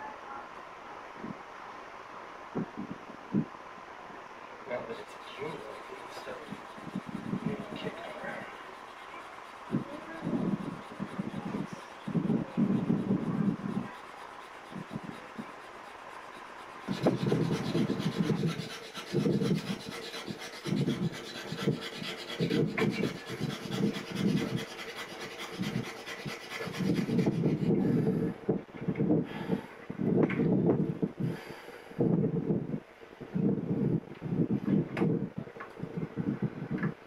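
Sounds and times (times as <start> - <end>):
wooden stick rasping on wooden board: 4.7 - 28.2.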